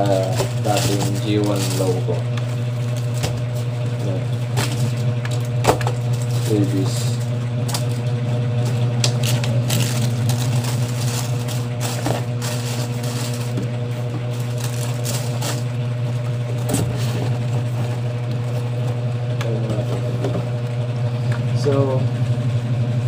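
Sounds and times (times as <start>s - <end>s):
ceiling fan hum: 0.0s - 23.0s
tissue paper rustling: 9.2s - 15.7s.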